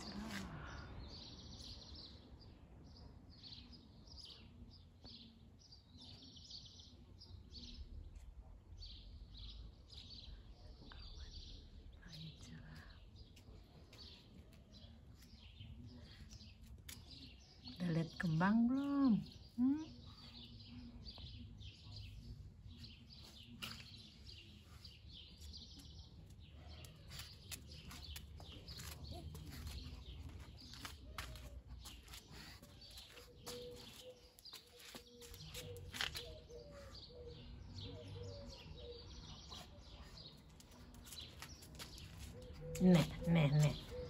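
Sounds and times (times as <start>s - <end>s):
birds chirping: 11.2s - 44.0s.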